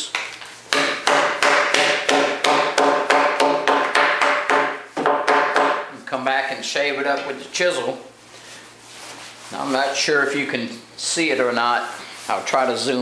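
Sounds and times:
wooden mallet knocking timber: 0.7s - 5.9s.

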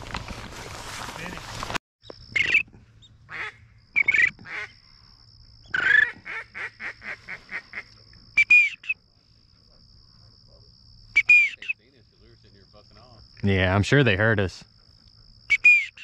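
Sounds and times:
duck quacking: 3.3s - 4.8s, 5.7s - 7.9s.

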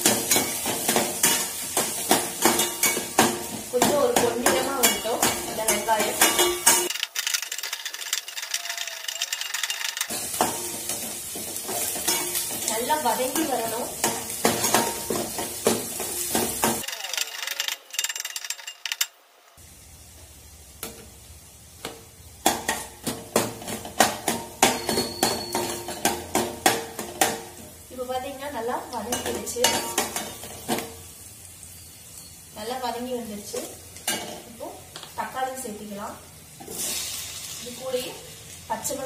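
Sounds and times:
onions frying in oil: 0.0s - 17.6s, 19.5s - 39.0s.

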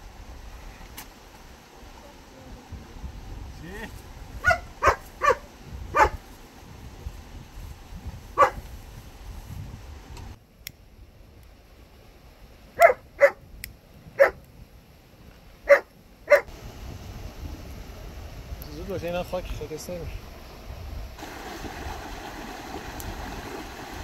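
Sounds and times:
dog barking: 4.4s - 6.2s, 8.4s - 8.6s, 12.8s - 13.4s, 14.2s - 14.4s, 15.7s - 16.5s.

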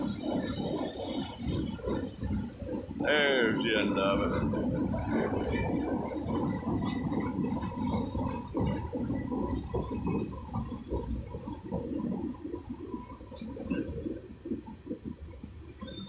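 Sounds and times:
steel wheels rumbling on rails: 0.0s - 11.5s.

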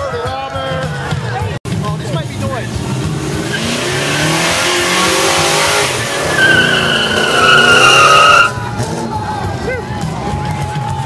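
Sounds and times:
car engine revving: 2.0s - 9.4s
spinning tires hissing: 2.7s - 9.2s
tire squeal: 3.4s - 9.0s.

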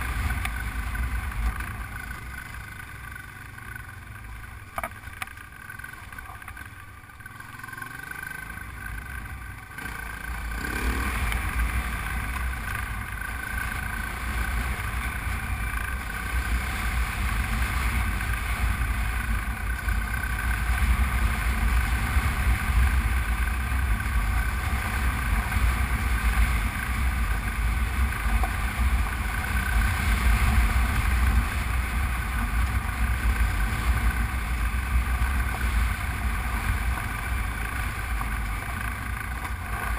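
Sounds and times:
motorcycle engine running: 0.0s - 39.9s
wind rumble on microphone: 16.4s - 38.7s.

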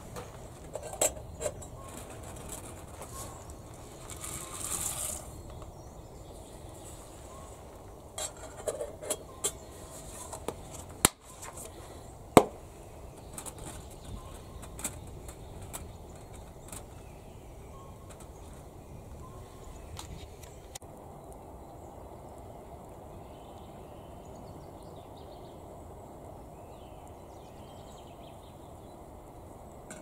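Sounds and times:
dry pasta rustling into pot: 1.2s - 5.7s.

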